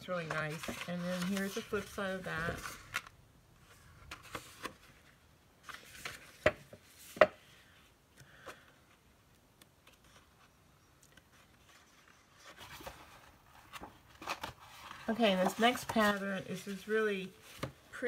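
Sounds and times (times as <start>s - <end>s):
paper rustling and tapping: 5.7s - 7.4s.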